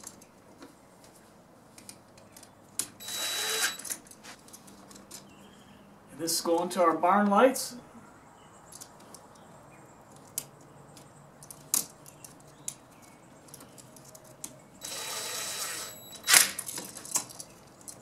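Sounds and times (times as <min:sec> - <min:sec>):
small clicks and metallic clatter: 0:16.3 - 0:18.0.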